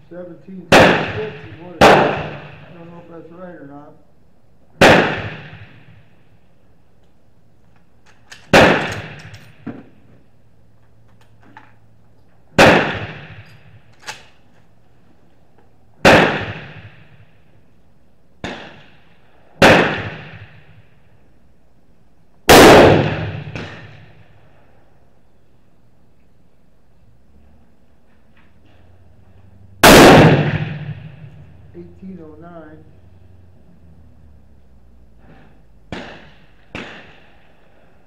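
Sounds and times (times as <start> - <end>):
rifle shots echoing: 0.5 - 3.2, 4.8 - 6.4, 8.2 - 10.1, 12.5 - 14.4, 16.0 - 17.5, 18.4 - 21.2, 22.4 - 24.5, 29.8 - 31.3, 35.9 - 37.8.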